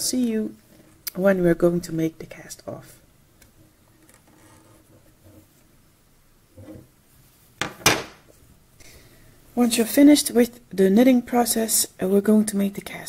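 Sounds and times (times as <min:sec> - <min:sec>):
loom knocking on wooden table: 0:07.6 - 0:08.2.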